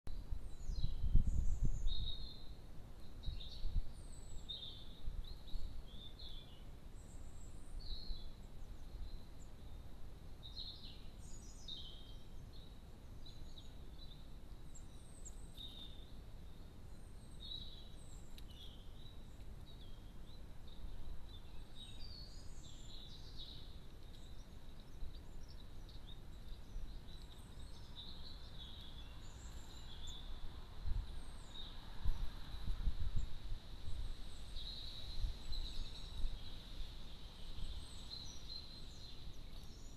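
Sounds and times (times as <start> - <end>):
songbirds chirping: 0.1 - 39.9.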